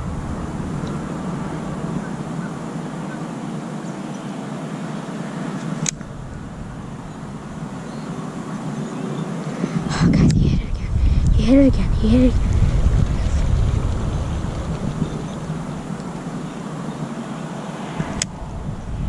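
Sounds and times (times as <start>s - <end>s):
outdoor background noise: 0.0s - 19.0s
sharp click: 5.8s - 6.1s.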